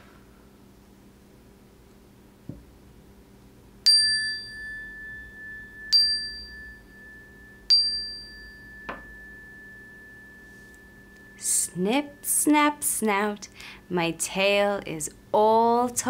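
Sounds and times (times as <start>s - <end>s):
metal chime bar ringing: 3.9s - 12.7s.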